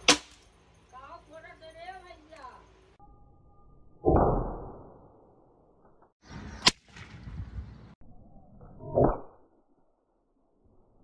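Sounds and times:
sharp crack: 0:00.0 - 0:00.5, 0:06.6 - 0:07.3.

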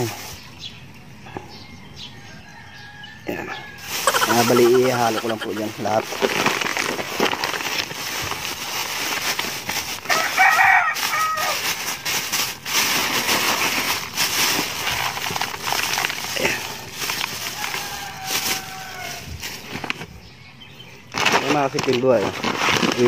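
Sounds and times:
plastic bag rustling: 0:00.0 - 0:00.7, 0:03.8 - 0:20.2, 0:21.1 - 0:23.0
rooster crowing: 0:01.6 - 0:05.6, 0:10.1 - 0:11.7, 0:17.3 - 0:19.3
granules pouring hiss: 0:03.8 - 0:07.2, 0:07.8 - 0:19.3.

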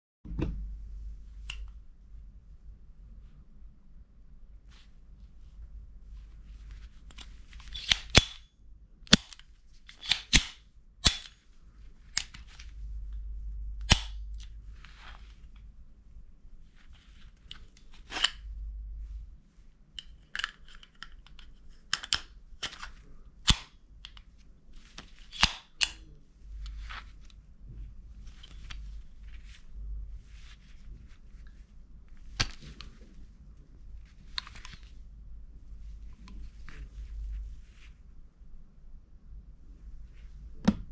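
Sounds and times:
pistol slide metallic clicks: 0:07.7 - 0:08.5, 0:10.0 - 0:11.4, 0:13.9 - 0:14.2, 0:23.4 - 0:24.2, 0:25.3 - 0:26.0.

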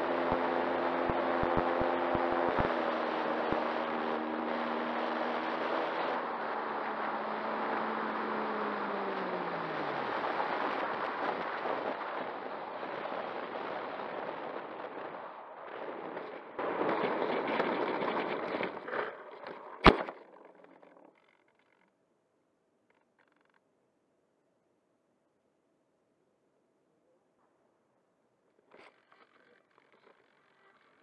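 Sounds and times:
electric motor whine winding down: 0:00.0 - 0:21.0
wheels rumbling on ground: 0:00.0 - 0:21.9.

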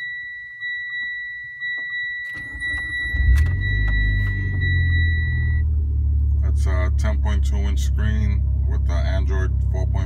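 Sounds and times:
high electronic tone: 0:01.7 - 0:05.7
car engine cranking and idling: 0:01.7 - 0:10.0.

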